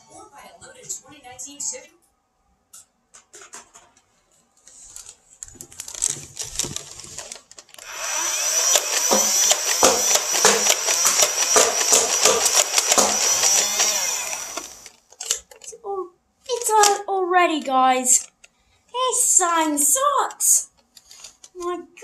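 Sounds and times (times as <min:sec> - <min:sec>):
toy blaster motor whirring: 0:05.8 - 0:15.4
sharp clicks: 0:06.6 - 0:15.0.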